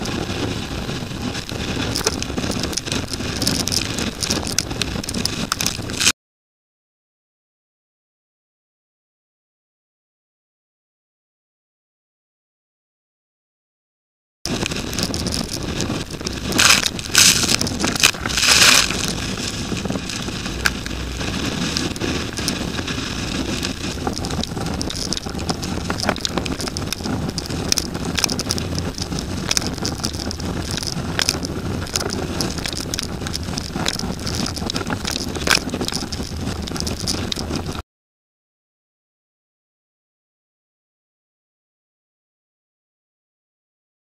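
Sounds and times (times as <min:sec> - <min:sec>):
strong wind on microphone: 0:00.0 - 0:06.1, 0:14.5 - 0:37.8
rushing water and spray: 0:14.5 - 0:37.7.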